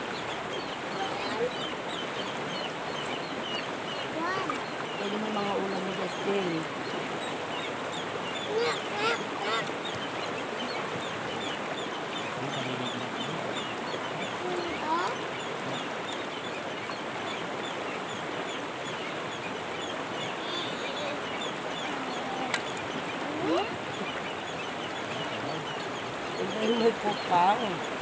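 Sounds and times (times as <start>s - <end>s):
river water flowing: 0.0s - 28.0s
faint high chirping: 18.1s - 26.5s.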